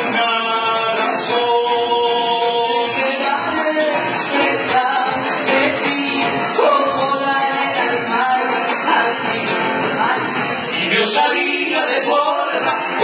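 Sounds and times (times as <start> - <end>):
acoustic guitar: 0.0 - 13.0
cajon drumming: 0.0 - 13.0
person singing: 0.0 - 13.0.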